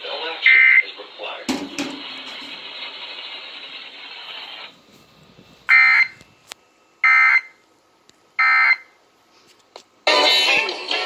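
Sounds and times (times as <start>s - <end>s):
radio hiss: 0.0s - 6.2s.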